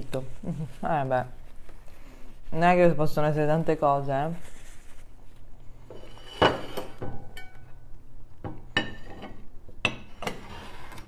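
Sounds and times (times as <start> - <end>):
tableware clinking: 5.9 - 7.8, 8.7 - 10.5.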